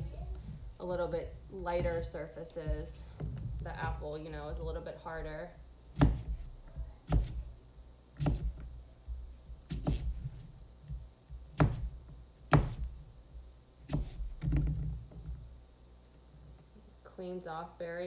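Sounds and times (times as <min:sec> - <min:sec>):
knife slicing onion: 0:05.9 - 0:07.5, 0:08.2 - 0:08.7, 0:09.6 - 0:10.4, 0:11.5 - 0:13.0, 0:13.8 - 0:14.5.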